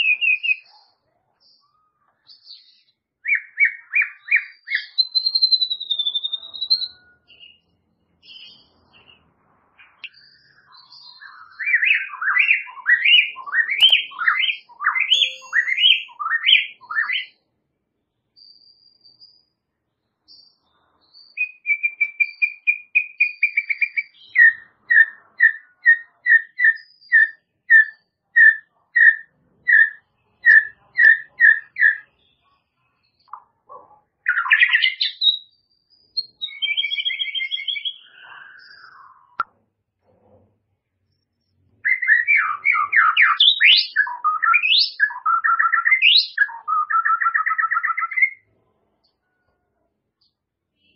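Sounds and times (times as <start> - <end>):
bird singing whistles and trills: 0.0 - 1.0, 1.6 - 9.2, 9.8 - 17.4, 20.3 - 32.0, 34.2 - 39.4, 41.2 - 48.4.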